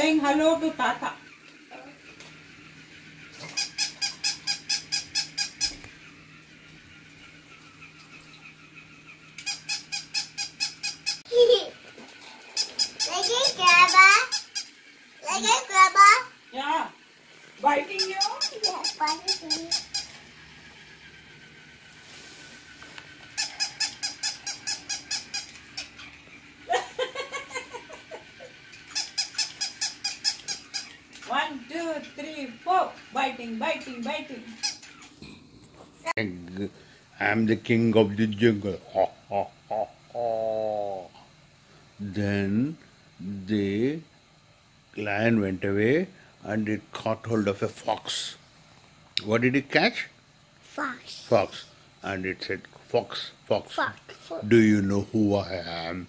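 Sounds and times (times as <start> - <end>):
faint steady hum: 0.0 - 56.0
toy dog electronic yips: 1.2 - 11.3, 12.5 - 14.8, 17.8 - 20.2, 23.3 - 26.7, 27.3 - 31.1, 34.5 - 35.1.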